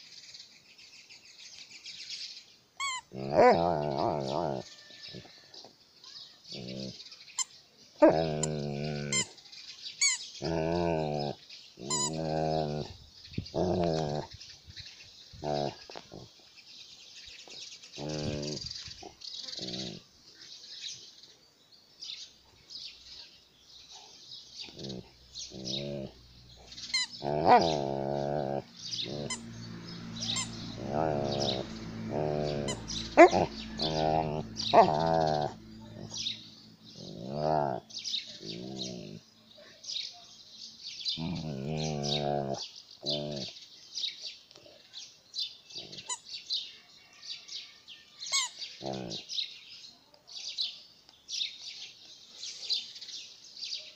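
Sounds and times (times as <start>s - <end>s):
dog growling playfully: 2.8s - 5.2s, 6.5s - 7.2s, 8.0s - 9.4s, 10.0s - 14.5s, 15.2s - 16.4s, 17.6s - 20.1s, 23.7s - 39.3s, 40.9s - 43.6s, 45.7s - 46.2s, 48.4s - 49.5s.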